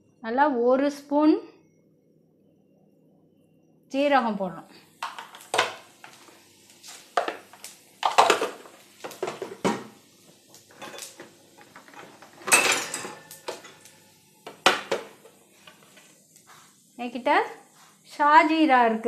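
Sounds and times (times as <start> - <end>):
kitchen utensils clinking: 5.0 - 6.2, 7.2 - 9.9, 10.7 - 15.3.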